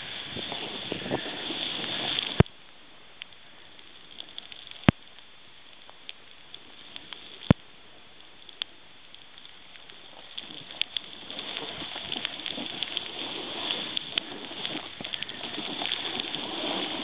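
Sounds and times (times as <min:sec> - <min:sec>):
snowboard hissing over snow: 0:00.0 - 0:02.4, 0:10.4 - 0:17.0
rough scraping noise: 0:10.3 - 0:17.0.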